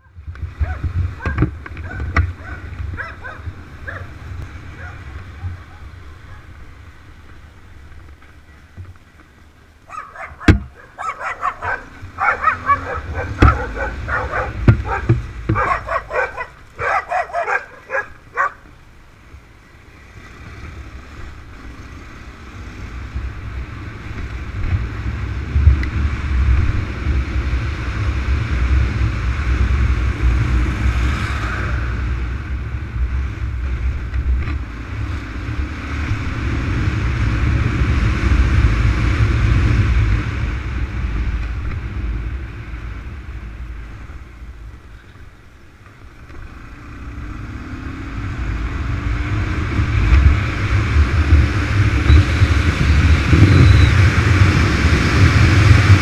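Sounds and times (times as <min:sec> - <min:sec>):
motorcycle engine rumbling: 0:00.0 - 0:56.0
wind: 0:00.0 - 0:56.0
dog barking: 0:00.6 - 0:04.2, 0:04.8 - 0:06.5, 0:09.9 - 0:18.6.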